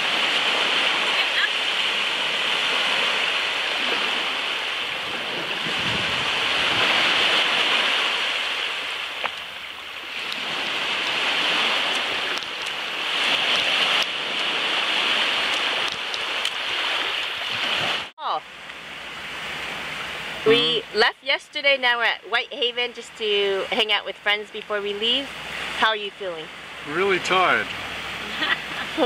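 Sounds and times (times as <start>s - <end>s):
small waves washing on sand: 0.0s - 29.0s.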